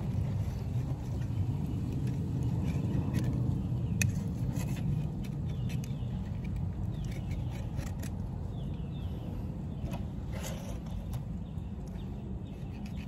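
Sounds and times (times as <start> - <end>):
steady low rumble: 0.0 - 13.0
knife clicking and scraping fish: 1.9 - 8.4.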